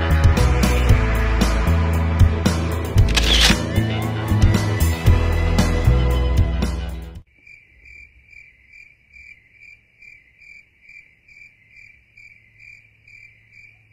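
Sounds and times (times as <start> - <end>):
background music: 0.0 - 7.2
cricket chirping: 7.3 - 13.9.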